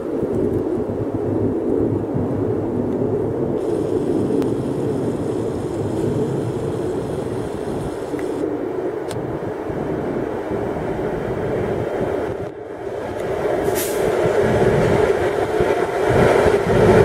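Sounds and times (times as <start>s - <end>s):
diesel locomotive engine rumble: 3.5s - 8.4s, 9.0s - 17.0s.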